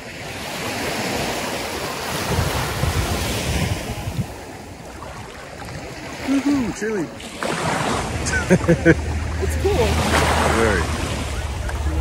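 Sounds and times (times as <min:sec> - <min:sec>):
wind rumbling on microphone: 0:00.0 - 0:06.8
small waves washing over sand: 0:00.0 - 0:12.0.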